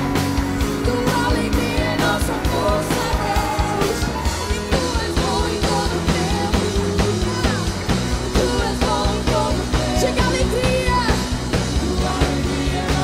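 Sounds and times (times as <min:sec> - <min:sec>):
drum kit beat: 0:00.0 - 0:13.0
guitars and keyboard: 0:00.0 - 0:13.0
people singing into microphones: 0:00.0 - 0:13.0.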